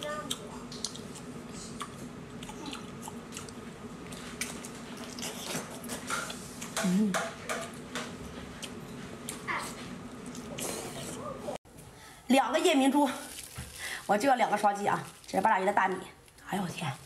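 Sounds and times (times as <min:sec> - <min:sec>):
wet chewing and lip-smacking: 0:00.2 - 0:06.8.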